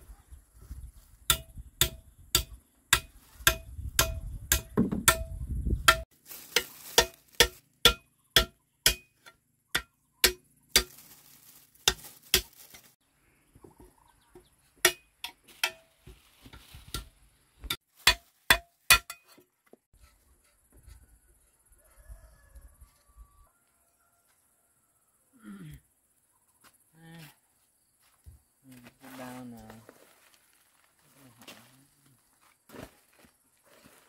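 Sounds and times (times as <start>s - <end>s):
metal hand tools striking: 1.3s - 11.1s, 14.8s - 15.9s, 18.0s - 19.4s.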